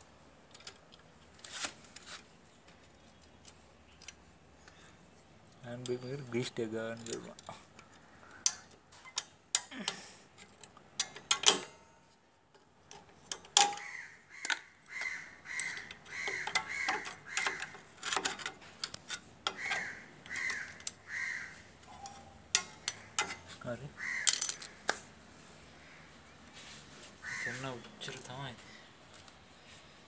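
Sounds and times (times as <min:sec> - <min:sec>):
crow cawing: 0:07.9 - 0:08.7, 0:13.8 - 0:17.8, 0:19.5 - 0:21.7, 0:23.9 - 0:24.8, 0:27.2 - 0:27.8
metal tools clicking and clinking: 0:08.4 - 0:11.9, 0:12.6 - 0:13.8, 0:15.6 - 0:21.0, 0:21.9 - 0:23.5, 0:24.2 - 0:24.8.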